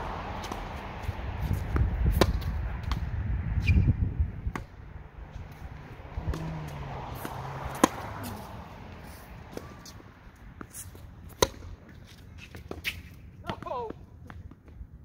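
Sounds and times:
tennis rackets hitting balls: 0.0s - 3.8s, 4.4s - 14.8s
low rumble: 0.0s - 9.5s
tennis ball bouncing: 0.3s - 3.8s, 4.4s - 14.8s.

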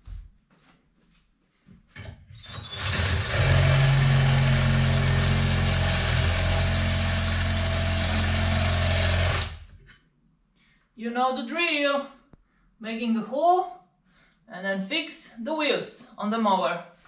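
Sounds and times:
drill boring into metal: 2.4s - 9.7s.

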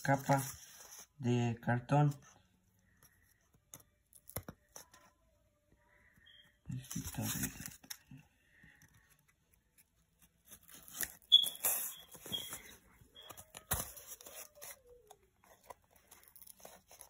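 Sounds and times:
short high squeaks: 11.3s - 13.4s.

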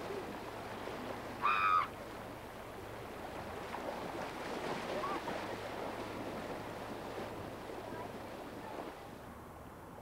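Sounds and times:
creek water rushing and splashing: 0.0s - 9.5s
faint distant voices: 7.6s - 9.5s.

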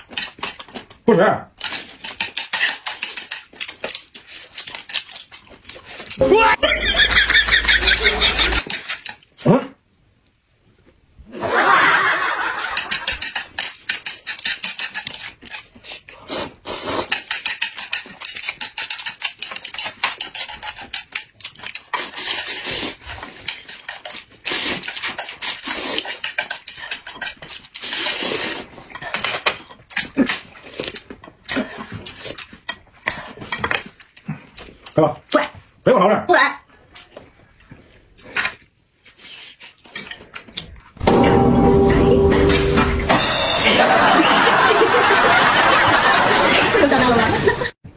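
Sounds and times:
chewing: 1.7s - 6.2s, 13.0s - 35.0s
chopsticks scraping a plate: 12.6s - 34.0s, 38.2s - 40.8s
slurping: 12.8s - 34.6s.

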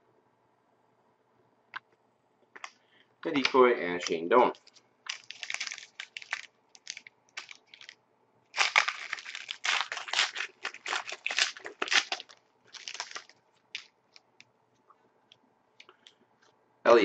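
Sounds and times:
foil wrapper crinkling: 4.0s - 8.0s, 8.6s - 14.3s.

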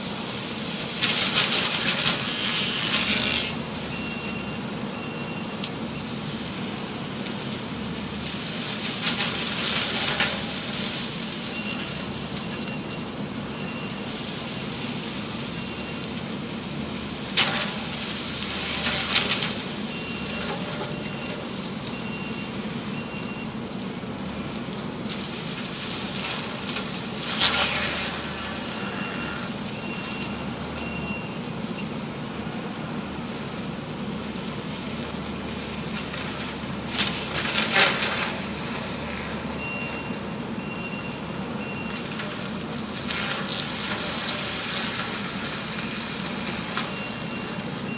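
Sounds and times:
diesel engine drone: 0.0s - 47.9s
mulcher grinding brush: 1.0s - 3.8s, 17.3s - 20.9s, 25.0s - 30.4s, 35.0s - 39.9s, 42.1s - 47.8s
short beeps: 3.9s - 6.1s, 28.8s - 31.9s, 39.6s - 42.0s.

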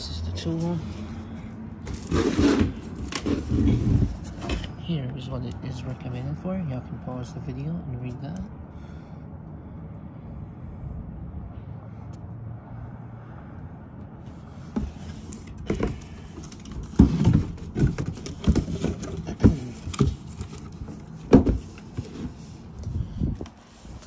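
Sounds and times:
cardboard box thumps and rustles: 14.7s - 22.4s.

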